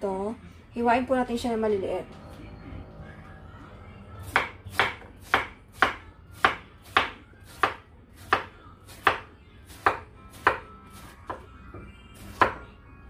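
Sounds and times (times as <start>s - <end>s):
knife chopping on wooden board: 4.2s - 11.4s, 12.3s - 12.6s.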